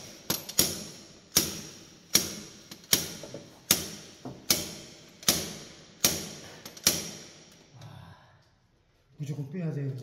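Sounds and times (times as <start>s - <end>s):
slide hammer striking metal: 0.0s - 7.3s.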